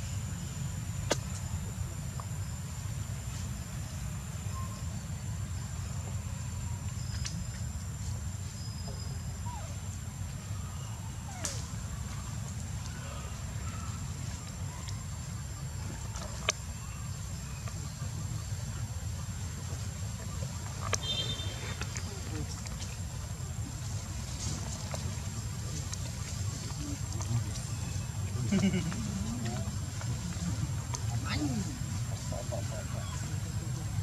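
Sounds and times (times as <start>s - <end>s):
steady low rumble: 21.8s - 34.0s.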